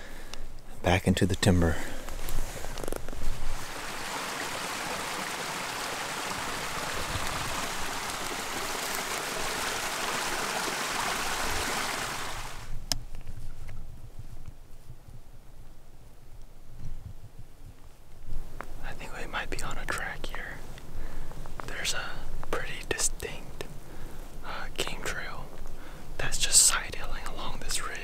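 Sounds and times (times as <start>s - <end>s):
running water rushing: 3.5s - 12.7s.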